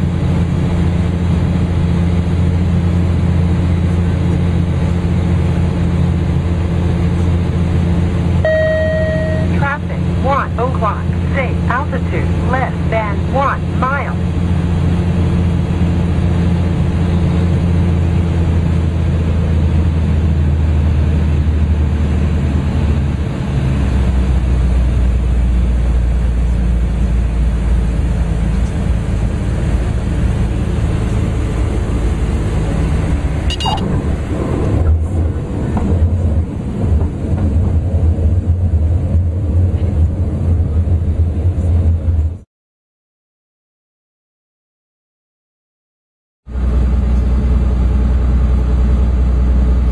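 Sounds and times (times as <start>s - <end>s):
aircraft engine and propeller drone: 0.0s - 42.4s, 46.5s - 49.9s
short high beep: 8.4s - 9.6s, 33.5s - 33.8s.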